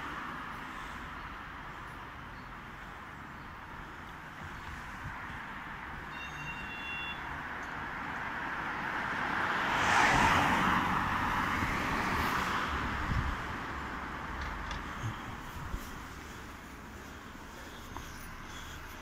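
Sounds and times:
car passing: 0:07.9 - 0:19.0.

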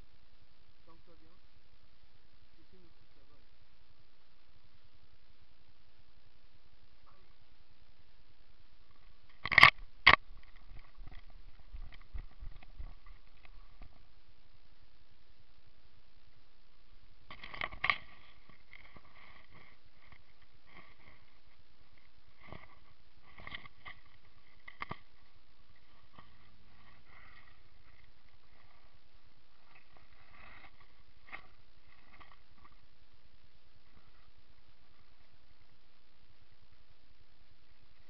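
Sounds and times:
microphone hiss: 0:00.0 - 0:38.0
leaves rustling against camera: 0:08.8 - 0:14.2, 0:17.2 - 0:35.8.

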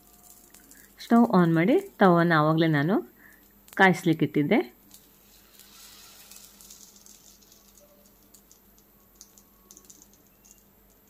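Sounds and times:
oil crackling and popping: 0:00.0 - 0:02.0, 0:04.8 - 0:11.0.

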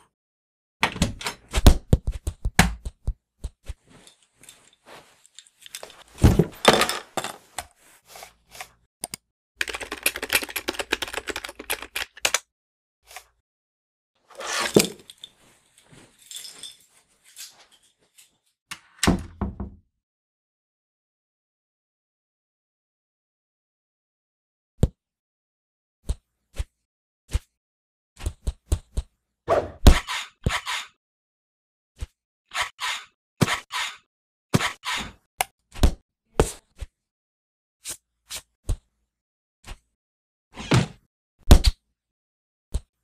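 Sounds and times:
door clicks and knocks: 0:00.8 - 0:01.5
rapid keyboard-like typing: 0:09.6 - 0:12.4
cartoon clicks and thunks: 0:40.7 - 0:41.8.

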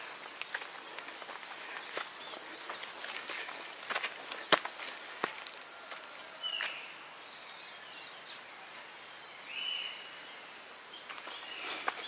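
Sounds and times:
footsteps: 0:00.0 - 0:06.8, 0:11.1 - 0:12.0
birds calling: 0:00.0 - 0:12.0
outdoor hiss: 0:00.0 - 0:12.0
faint bird chirps: 0:06.2 - 0:12.0.

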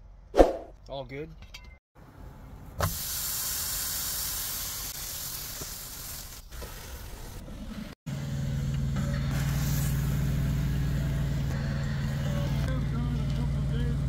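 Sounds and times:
steak sizzling in a skillet: 0:03.0 - 0:06.4
low engine hum: 0:08.1 - 0:14.0.

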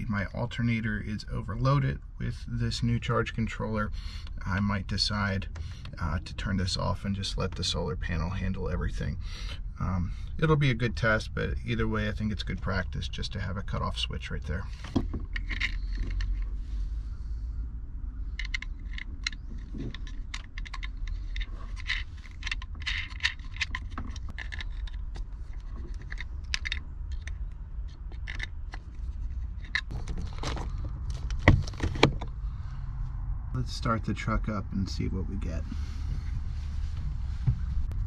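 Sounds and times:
steady low rumble: 0:00.0 - 0:38.0
small metallic clicks and rattles: 0:14.8 - 0:16.6, 0:18.3 - 0:32.3.

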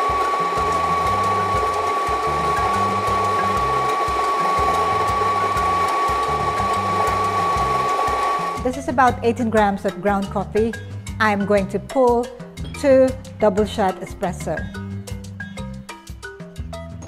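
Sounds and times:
high whine: 0:00.0 - 0:08.7
coffee grinder grinding: 0:00.0 - 0:08.8.

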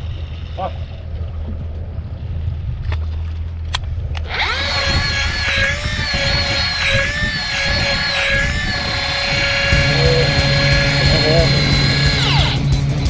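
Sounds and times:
electric reel motor whining: 0:04.2 - 0:13.0.

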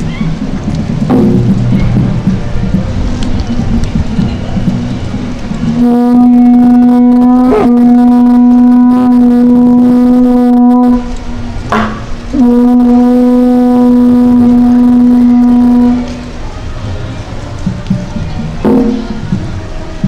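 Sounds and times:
conch-shell trumpet blasts: 0:05.6 - 0:16.4.

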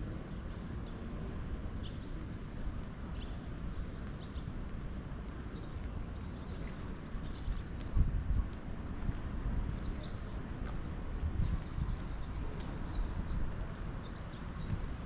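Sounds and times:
small birds chirping: 0:03.1 - 0:04.6, 0:05.5 - 0:08.5, 0:09.7 - 0:15.0.

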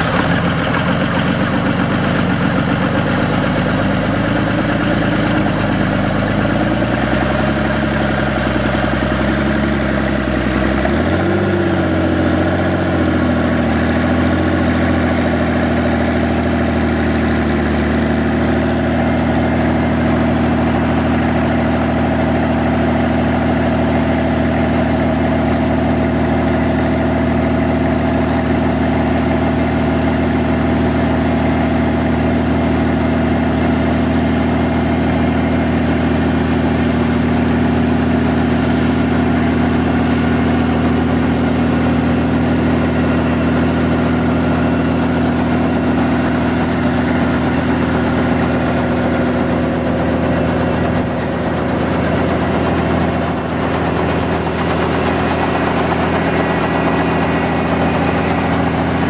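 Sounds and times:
helicopter piston engine running: 0:00.0 - 0:59.0
helicopter rotor turning: 0:41.8 - 0:59.0.

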